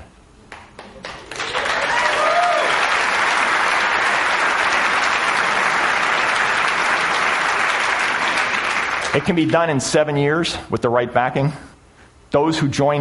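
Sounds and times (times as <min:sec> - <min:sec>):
audience applauding: 0:00.5 - 0:09.6
person whooping: 0:01.6 - 0:02.9.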